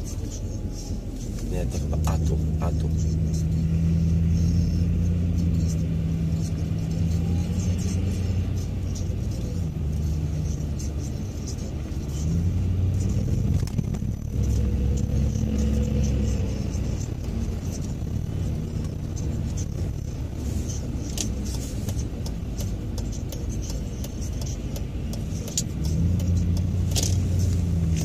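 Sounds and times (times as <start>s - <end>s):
car engine hum: 0.0s - 28.0s
road noise inside car: 0.0s - 28.0s.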